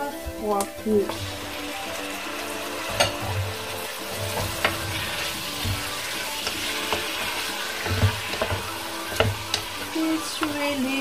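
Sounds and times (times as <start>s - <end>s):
meat sizzling in oil: 0.0s - 11.0s
wooden spatula clicking on pot: 5.5s - 10.6s.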